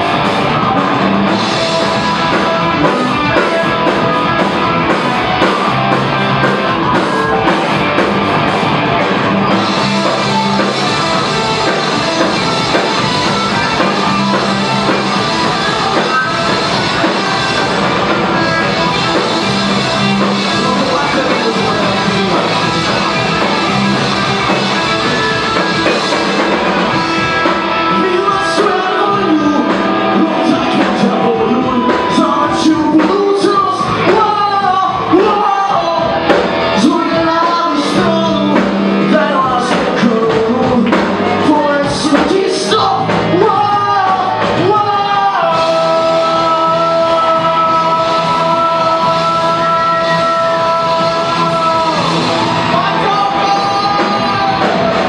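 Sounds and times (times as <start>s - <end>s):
male lead vocal: 0.0s - 8.0s, 8.9s - 55.0s
live rock band playing: 0.0s - 55.0s.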